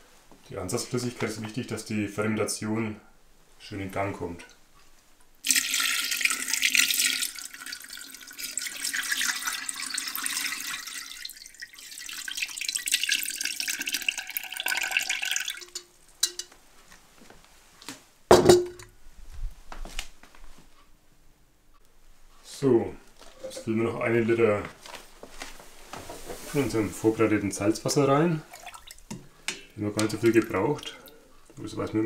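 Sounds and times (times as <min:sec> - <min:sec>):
liquid pouring and splashing: 0:05.4 - 0:16.5, 0:28.5 - 0:29.2, 0:30.0 - 0:31.2.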